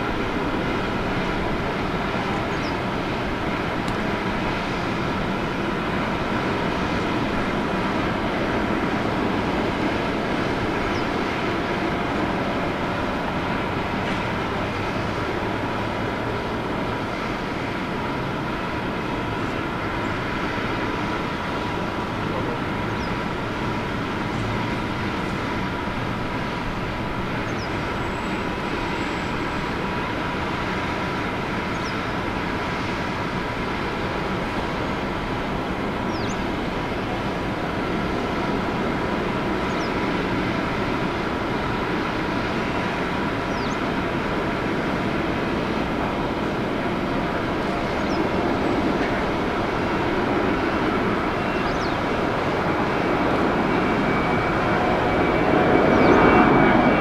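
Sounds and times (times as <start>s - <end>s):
faint engine whine: 0.0s - 57.0s
jet engines running: 0.0s - 57.0s.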